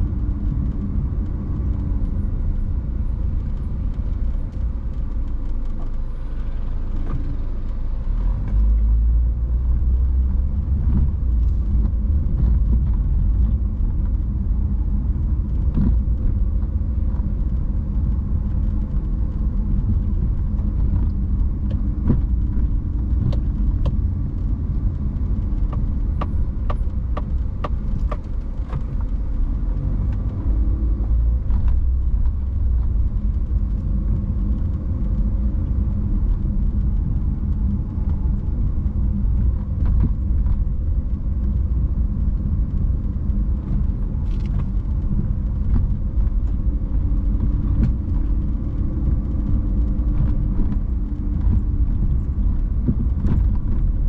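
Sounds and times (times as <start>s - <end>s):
road and engine rumble: 0.0s - 54.0s.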